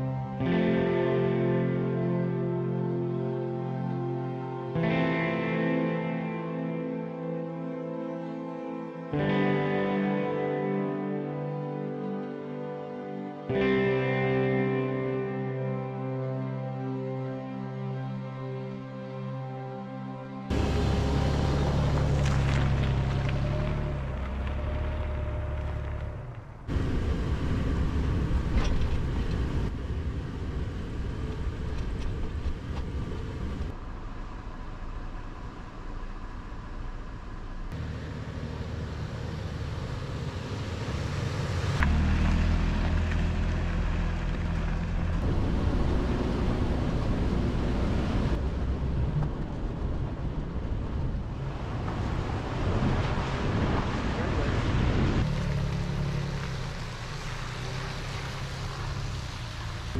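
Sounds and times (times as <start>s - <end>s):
vehicle road and wind noise: 20.4s - 59.9s
low engine hum: 20.5s - 59.9s.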